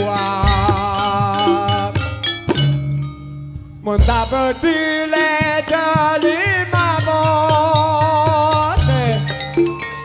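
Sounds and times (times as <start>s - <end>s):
live band music: 0.0s - 10.0s
loud drum hit: 4.0s - 6.2s.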